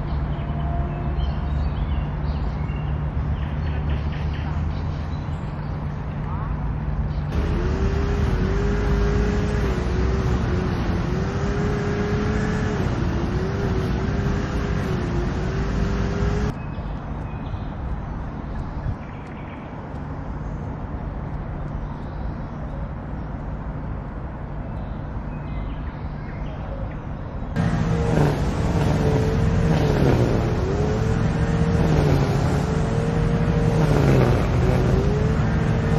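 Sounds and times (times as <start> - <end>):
road traffic hum: 0.0 - 35.9
wavering engine note: 7.3 - 16.5, 27.6 - 35.9.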